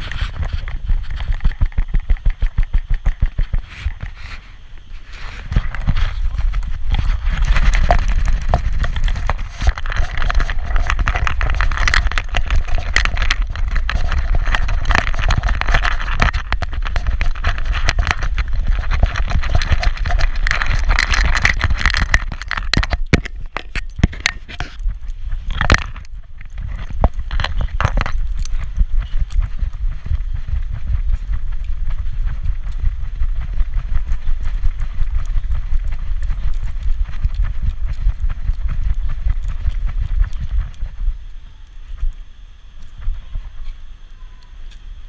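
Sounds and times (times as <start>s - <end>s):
camera handling rumble: 0.0s - 30.0s.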